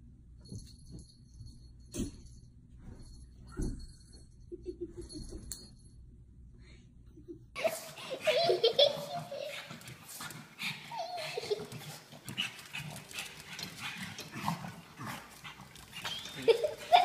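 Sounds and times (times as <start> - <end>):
paws tapping on tile floor: 7.6 - 17.0.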